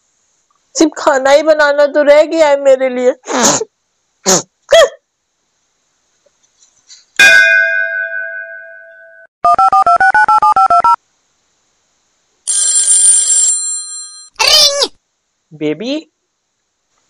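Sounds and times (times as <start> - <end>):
mobile phone ringtone: 12.5 - 14.3.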